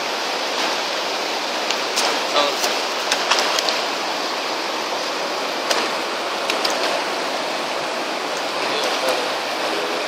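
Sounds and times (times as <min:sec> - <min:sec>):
whitewater river rushing: 0:00.0 - 0:10.0.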